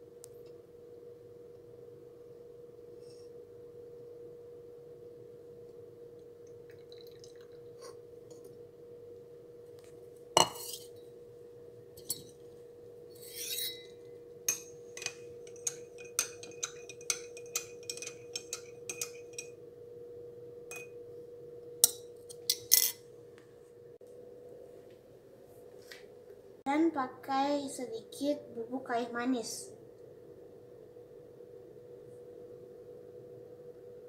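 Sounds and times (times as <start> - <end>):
faint steady hum: 0.0 - 34.0
kitchenware and glass clinking: 10.4 - 10.9, 13.2 - 19.6, 21.8 - 23.0.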